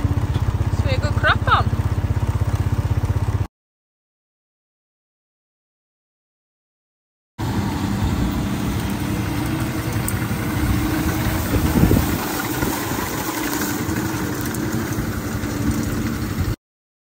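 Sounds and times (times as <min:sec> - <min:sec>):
tractor engine running: 0:00.0 - 0:03.5, 0:07.4 - 0:16.6.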